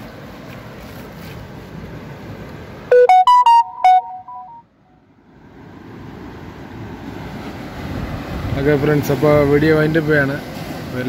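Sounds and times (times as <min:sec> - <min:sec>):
synthesized jingle: 0:02.9 - 0:04.6.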